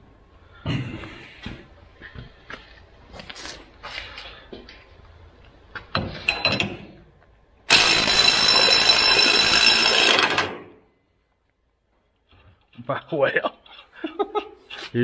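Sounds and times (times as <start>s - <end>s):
cordless ratchet running under load: 7.7s - 10.6s.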